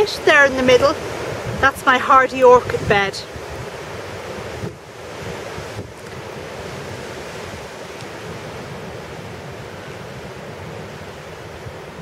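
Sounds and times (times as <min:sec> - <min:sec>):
wind buffeting microphone: 0:00.0 - 0:12.0
wind howling: 0:00.0 - 0:12.0.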